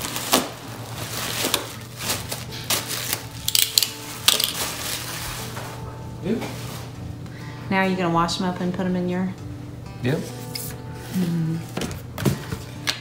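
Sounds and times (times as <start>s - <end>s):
plastic wrapping crinkling: 0.0s - 5.8s.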